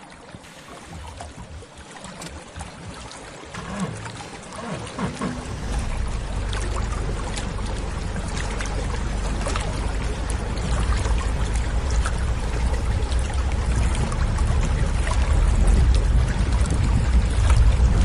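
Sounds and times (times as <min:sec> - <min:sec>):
vehicle engine and road rumble: 0:03.6 - 0:18.0
wind blowing across microphone: 0:12.8 - 0:18.0.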